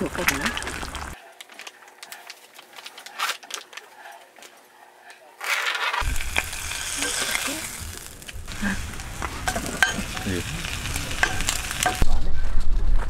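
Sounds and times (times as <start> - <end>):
meat sizzling in a frying pan: 6.0 - 12.0
metal utensils clicking on pan: 9.5 - 12.0.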